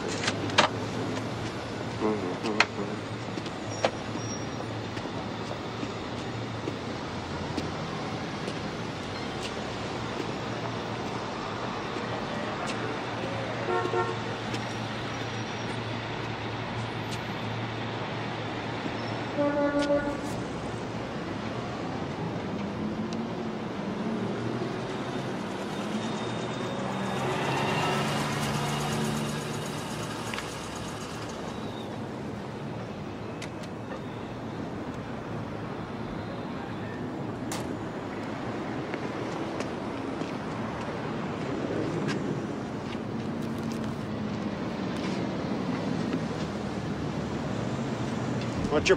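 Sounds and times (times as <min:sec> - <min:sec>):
street traffic: 0:00.0 - 0:48.9
car horn toots: 0:13.7 - 0:14.2, 0:19.4 - 0:20.3.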